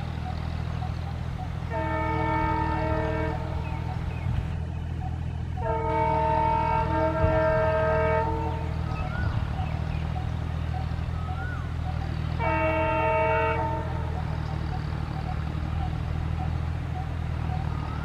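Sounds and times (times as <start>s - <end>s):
diesel engine chugging: 0.0s - 18.0s
locomotive horn blasts: 1.6s - 4.1s, 5.6s - 9.2s, 12.2s - 14.6s.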